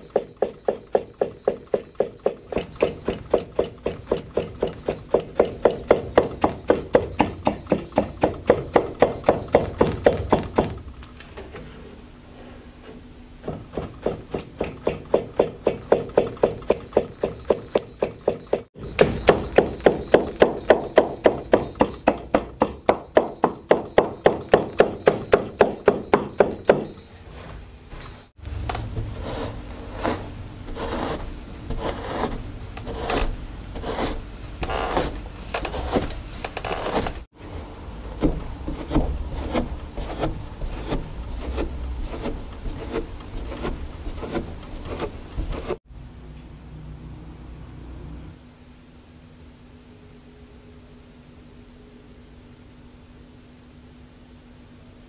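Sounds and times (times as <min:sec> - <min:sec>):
loom comb beating weft: 0:00.0 - 0:11.3, 0:13.4 - 0:27.2, 0:34.0 - 0:37.3.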